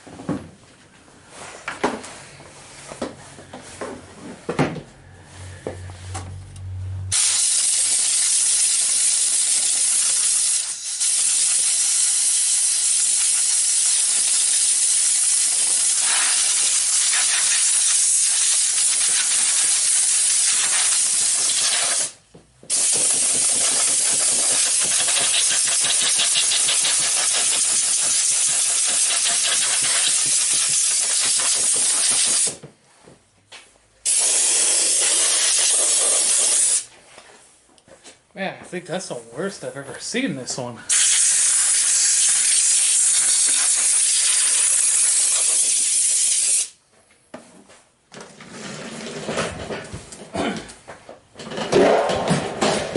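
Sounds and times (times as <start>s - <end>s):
compressed air hissing from blow gun: 7.1s - 32.6s, 34.1s - 36.9s, 40.9s - 46.8s.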